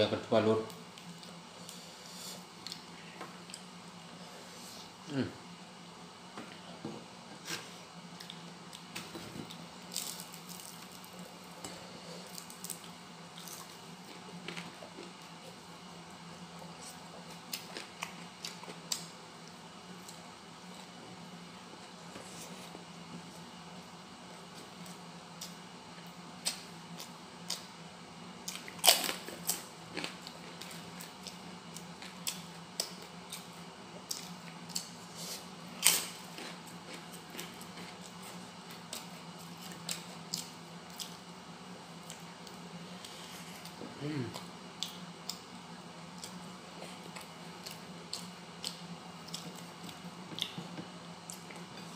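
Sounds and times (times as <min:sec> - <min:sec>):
faint steady hum: 0:00.0 - 0:51.9
person chewing and crunching: 0:28.4 - 0:41.2, 0:46.1 - 0:51.9.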